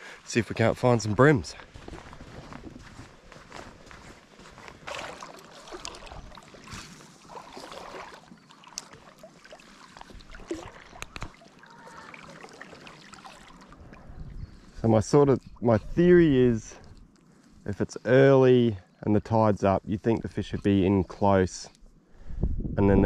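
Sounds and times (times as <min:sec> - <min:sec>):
seawater sloshing around legs: 0:04.0 - 0:14.8.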